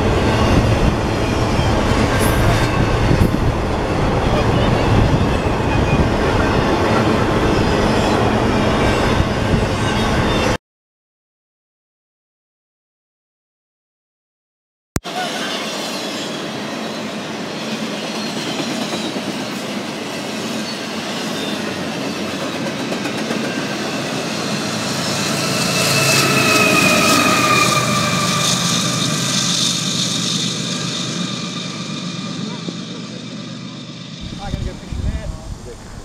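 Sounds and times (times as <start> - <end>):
freight cars rumbling: 34.2 - 36.0.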